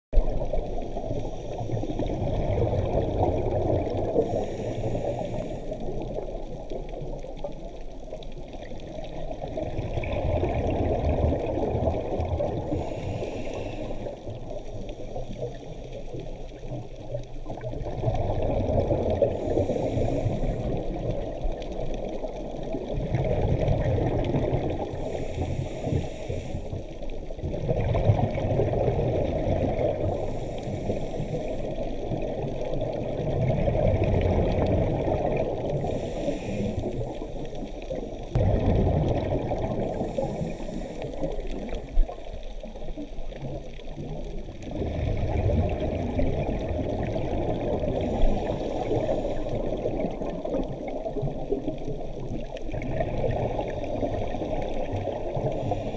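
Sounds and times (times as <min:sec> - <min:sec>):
scuba regulator breathing underwater: 0:00.7 - 0:06.2, 0:10.0 - 0:16.5, 0:18.2 - 0:21.5, 0:23.3 - 0:27.0, 0:28.2 - 0:32.2, 0:32.8 - 0:42.2, 0:44.6 - 0:51.5, 0:52.9 - 0:55.9
regulator hiss: 0:04.2 - 0:06.0, 0:12.6 - 0:14.2, 0:25.0 - 0:26.8, 0:35.8 - 0:38.3, 0:39.9 - 0:41.8.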